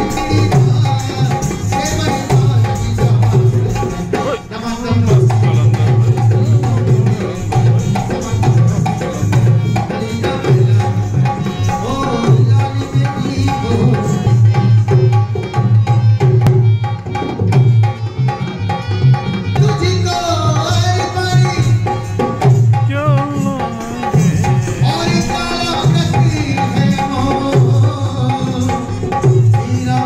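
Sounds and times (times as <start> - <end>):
hand drum beat: 0.0 - 30.0.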